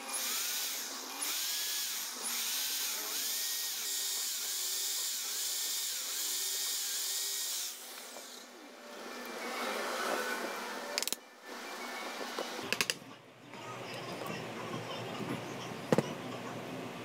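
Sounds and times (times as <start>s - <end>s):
electric drill boring plastic: 0.0s - 11.2s.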